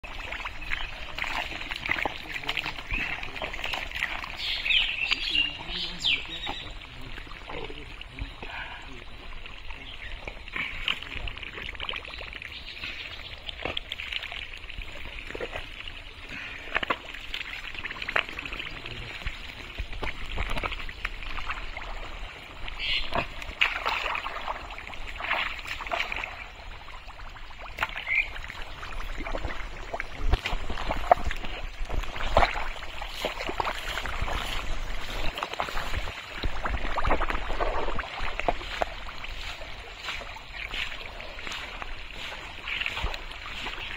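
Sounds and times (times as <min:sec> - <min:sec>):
splashing and squelching in mud: 0:00.0 - 0:43.9.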